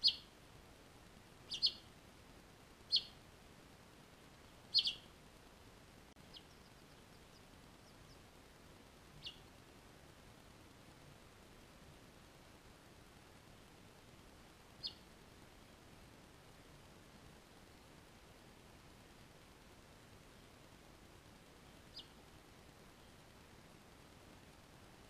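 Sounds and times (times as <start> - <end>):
finches chirping: 0.0 - 0.3, 1.5 - 1.9, 2.9 - 3.2, 4.7 - 5.1, 9.2 - 9.5, 14.8 - 15.1, 21.7 - 22.2.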